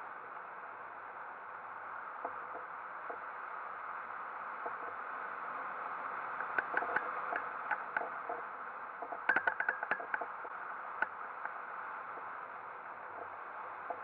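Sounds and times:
light clicks and ticks: 6.4s - 8.4s, 9.0s - 10.4s.

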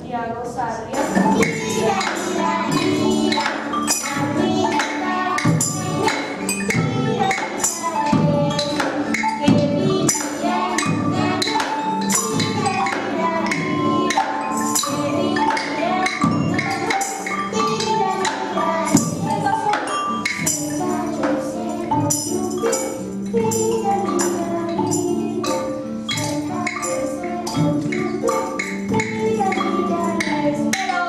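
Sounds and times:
tambourine jingling: 0.9s - 31.0s
wooden xylophones struck with mallets: 0.9s - 31.0s.

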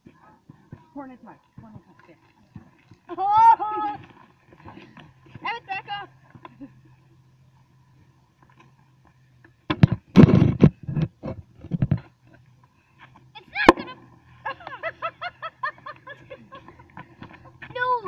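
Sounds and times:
bag popping with gas rush: 9.7s - 12.1s.

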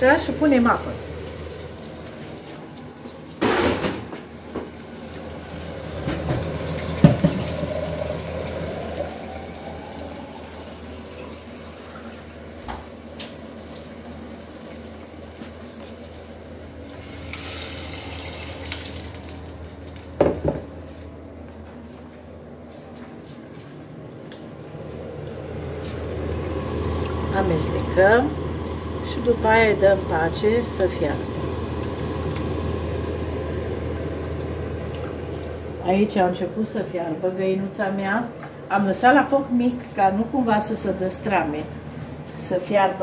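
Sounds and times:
water filling a pot: 4.8s - 20.6s, 26.0s - 35.6s.

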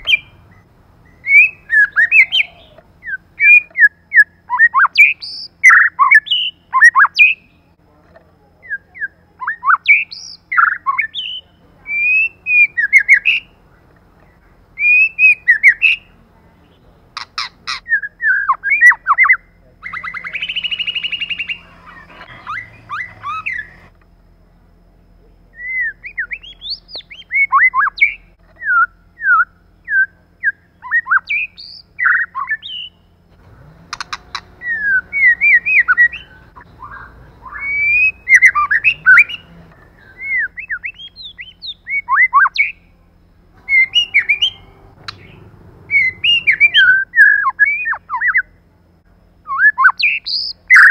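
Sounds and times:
harsh buzzy bird churr: 0.0s - 7.7s, 8.6s - 13.6s, 14.2s - 24.0s, 25.4s - 48.6s, 49.4s - 50.9s
bird singing whistled phrases: 1.0s - 7.5s, 8.6s - 13.5s, 14.8s - 16.1s, 17.4s - 21.6s, 25.5s - 33.0s, 34.3s - 42.9s, 43.7s - 48.5s, 49.5s - 50.9s.

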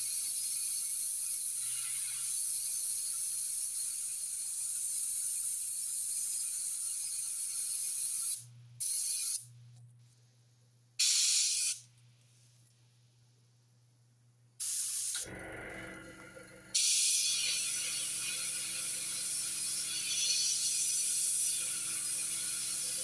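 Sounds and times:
airbrush hissing: 11.0s - 11.8s, 14.6s - 15.3s, 16.8s - 23.0s
low mechanical running sound: 15.2s - 16.8s.

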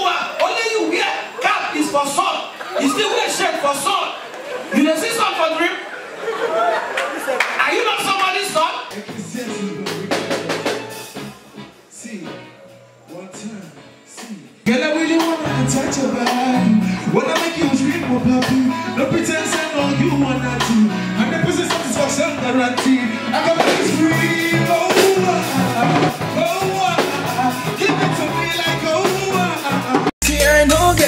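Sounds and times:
drums: 8.8s - 11.6s, 12.6s - 31.0s
man singing into a microphone: 9.2s - 10.7s, 14.7s - 31.0s.

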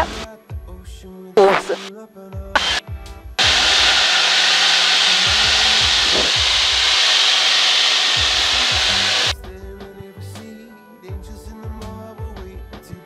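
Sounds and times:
air rushing in cockpit: 0.0s - 0.3s, 3.4s - 9.3s
hiss: 0.0s - 0.3s, 1.4s - 1.9s, 2.6s - 2.8s, 3.4s - 9.3s.

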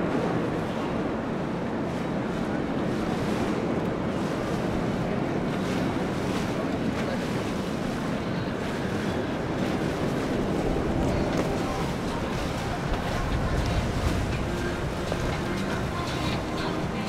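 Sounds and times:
rush of boat wake water: 0.0s - 17.0s
wind noise on microphone: 0.0s - 17.0s.

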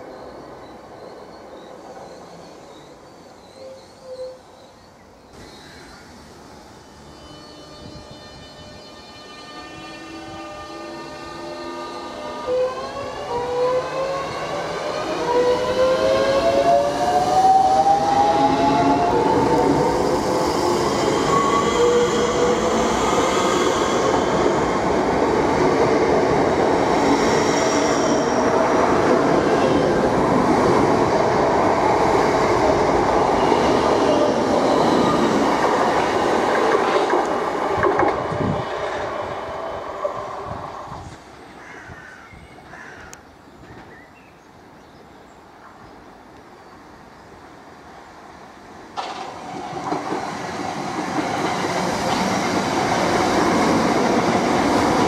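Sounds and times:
train horn low hoots: 7.1s - 14.1s
train wheels rumbling on rail: 7.2s - 41.4s, 48.6s - 55.0s.

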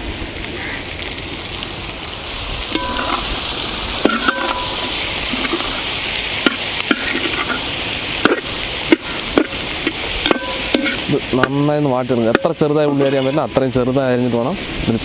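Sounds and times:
onions sizzling in a pan: 0.0s - 15.0s
spoon clinking and scraping pan: 2.7s - 3.2s, 4.0s - 5.8s, 6.4s - 11.5s, 12.3s - 13.6s.

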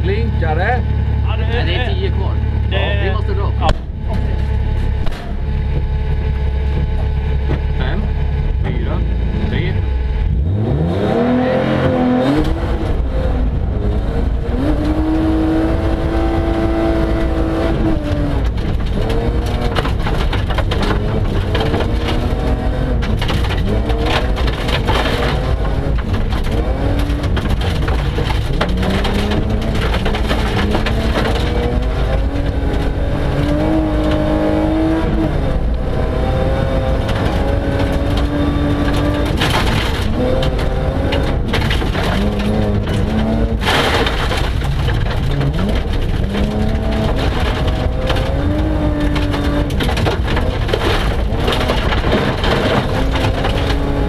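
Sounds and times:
gravel crunching: 0.0s - 54.0s
low road rumble: 0.0s - 54.0s
rally car engine revving: 0.0s - 54.0s
stones clattering against underside: 18.0s - 35.0s, 36.2s - 54.0s.

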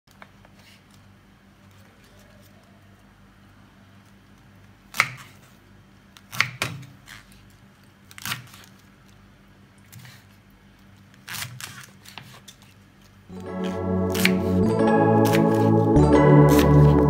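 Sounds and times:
knife cutting cabbage on board: 4.9s - 5.5s, 6.3s - 7.2s, 8.1s - 8.7s, 11.2s - 12.6s.

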